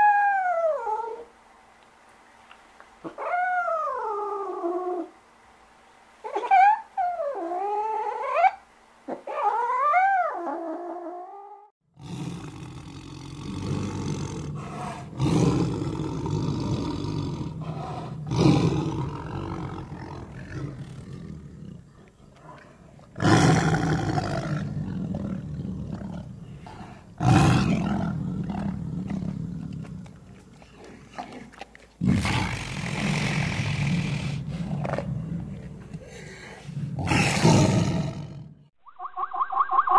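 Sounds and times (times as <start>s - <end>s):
tiger roaring: 12.0s - 38.6s.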